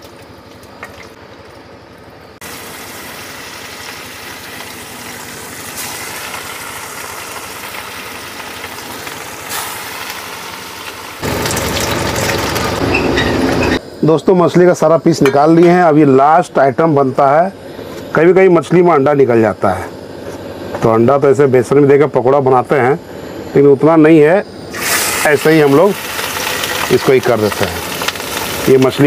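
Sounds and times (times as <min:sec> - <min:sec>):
fish sizzling in hot oil: 0:02.4 - 0:13.0, 0:24.7 - 0:29.0.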